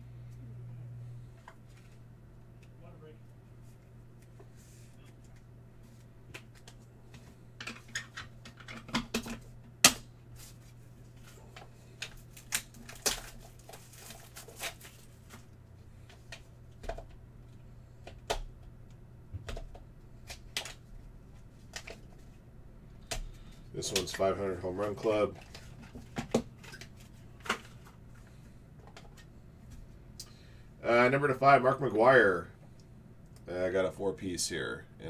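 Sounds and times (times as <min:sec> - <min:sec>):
packaging rustling: 0:10.4 - 0:15.5.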